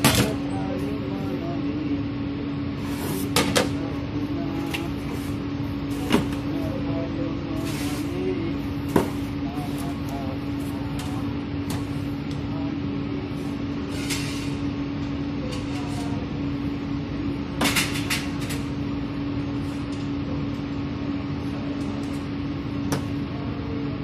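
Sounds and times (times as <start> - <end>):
kitchen equipment humming: 0.0 - 24.0.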